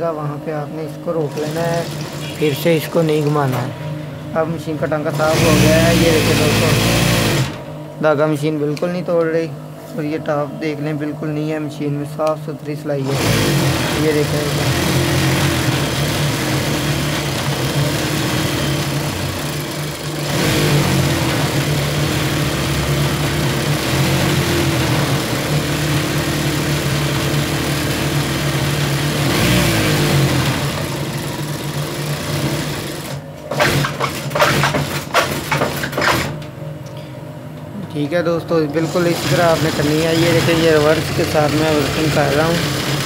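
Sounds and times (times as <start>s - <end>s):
sewing machine stitching: 1.2s - 3.7s, 5.1s - 7.7s, 13.0s - 36.4s, 38.8s - 43.0s.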